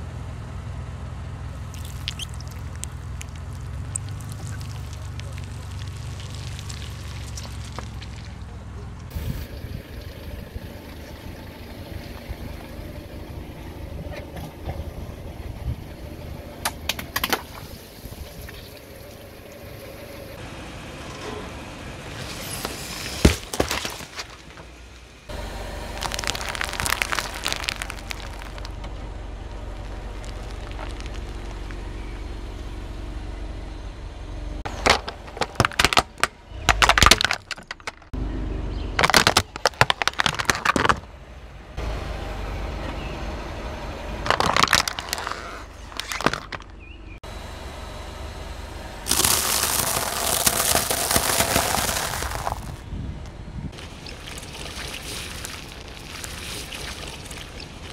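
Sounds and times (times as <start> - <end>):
low car rumble: 0.0 - 57.9
objects cracking under car tyre: 1.6 - 9.2, 16.6 - 18.8, 22.2 - 32.4, 34.6 - 38.2, 38.9 - 41.2, 44.2 - 47.0, 49.1 - 57.9.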